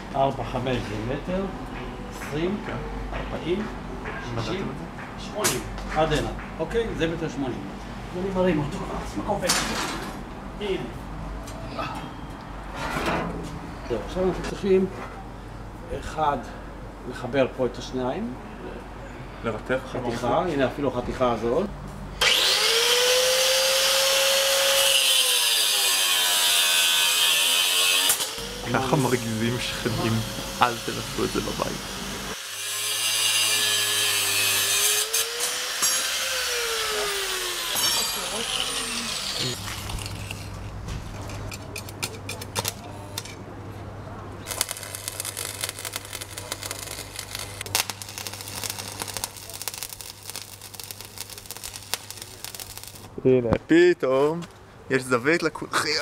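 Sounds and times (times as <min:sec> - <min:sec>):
angle grinder cutting steel: 0:22.2 - 0:40.6, 0:44.5 - 0:53.1
welding arc crackling: 0:22.3 - 0:40.6, 0:41.8 - 0:43.2, 0:44.4 - 0:53.2.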